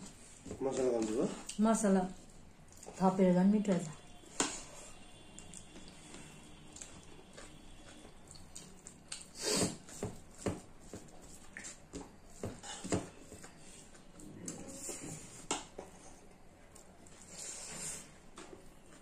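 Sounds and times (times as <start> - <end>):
chewing and wet mouth noises: 2.2 - 3.0, 5.1 - 11.9.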